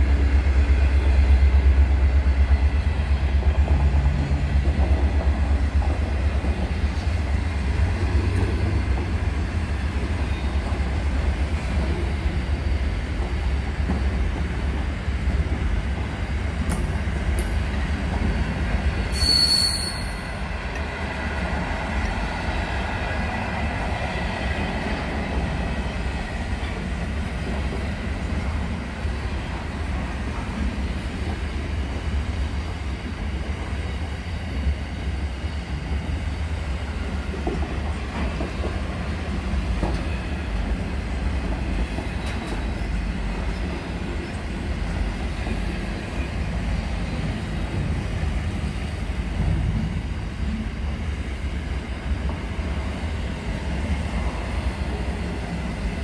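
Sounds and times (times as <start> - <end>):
freight train rumbling on rails: 0.0 - 56.0
train wheel squeal: 18.0 - 20.6.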